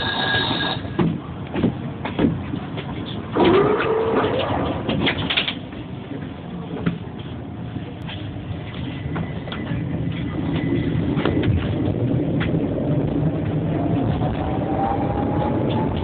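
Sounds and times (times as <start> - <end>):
tram rumble and hum: 0.0 - 16.0
scattered clicks and knocks: 4.3 - 5.8.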